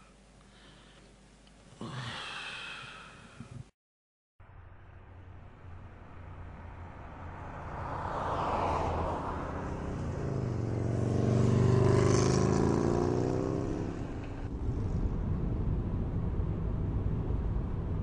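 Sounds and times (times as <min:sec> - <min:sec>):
car passing: 0:04.7 - 0:18.0
motorbikes and scooters passing: 0:06.2 - 0:15.0.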